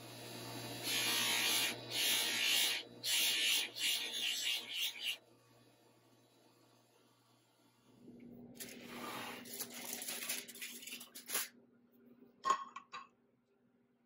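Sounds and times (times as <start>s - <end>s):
crinkling rustling: 9.5s - 11.5s.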